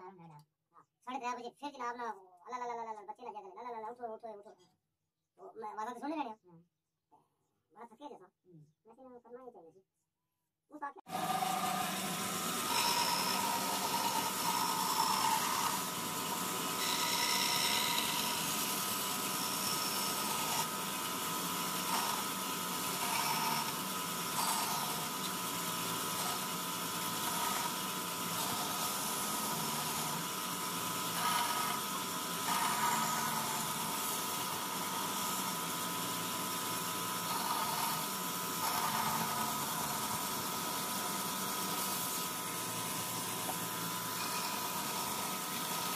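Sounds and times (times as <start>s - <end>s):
band saw running: 11.1s - 45.9s
saw blade cutting wood: 11.1s - 45.9s.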